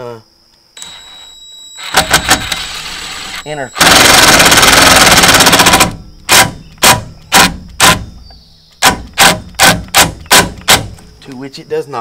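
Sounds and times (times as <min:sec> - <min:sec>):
impact driver rattling: 0:03.8 - 0:08.1.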